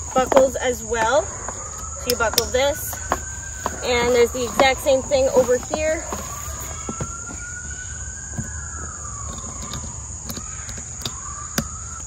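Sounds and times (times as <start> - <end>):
distant siren wailing: 0.0 - 12.0
high drone of insects: 0.0 - 12.0
plastic buckles clicking: 8.3 - 12.0.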